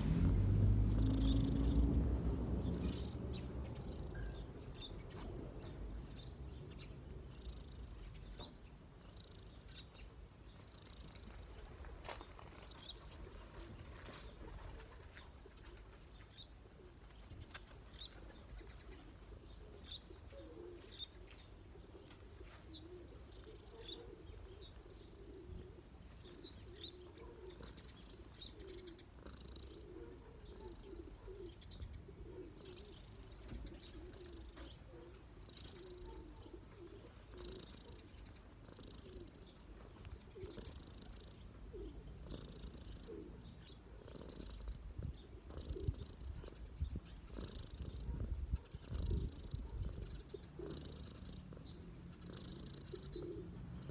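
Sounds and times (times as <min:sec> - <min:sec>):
cat purring: 0:00.0 - 0:04.9, 0:07.1 - 0:11.6, 0:22.1 - 0:53.9
birds chirping: 0:00.0 - 0:53.9.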